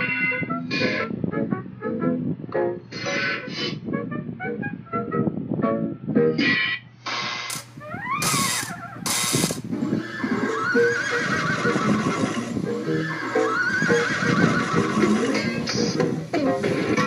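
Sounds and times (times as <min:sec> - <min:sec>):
horse whinnying: 0:08.0 - 0:15.6.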